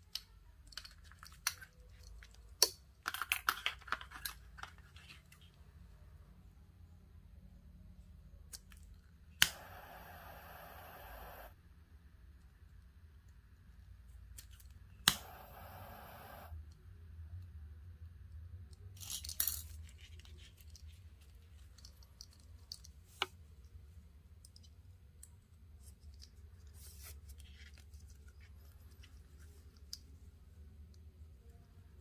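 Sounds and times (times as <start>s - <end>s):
steady low hum: 9.4s - 11.6s, 15.0s - 16.7s
cord rustling: 19.0s - 30.6s.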